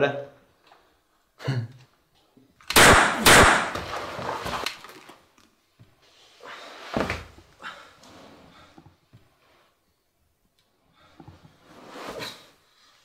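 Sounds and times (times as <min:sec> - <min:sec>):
pistol shots in a small room: 0:02.6 - 0:04.0.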